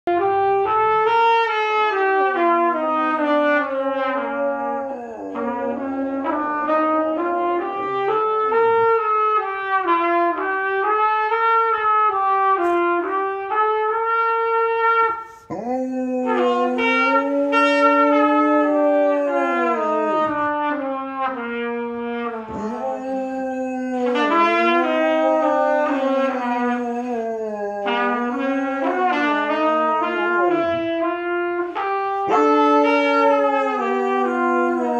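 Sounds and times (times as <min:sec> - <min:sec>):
trumpet wavering held notes: 0:00.1 - 0:15.3, 0:16.2 - 0:34.9
dog howling: 0:02.8 - 0:07.3, 0:15.4 - 0:20.9, 0:22.4 - 0:30.7, 0:31.7 - 0:34.9.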